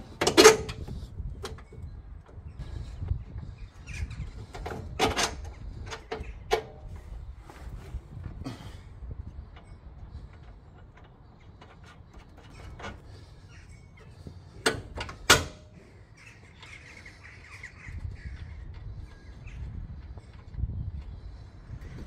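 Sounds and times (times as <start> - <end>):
small metal clicks and knocks: 9.4 - 13.2
birds cawing: 13.0 - 14.5, 15.8 - 19.7.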